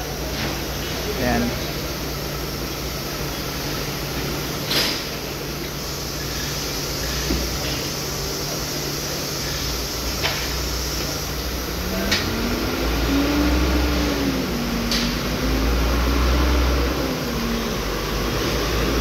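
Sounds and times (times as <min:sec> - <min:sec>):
low machinery hum: 0:09.0 - 0:19.0.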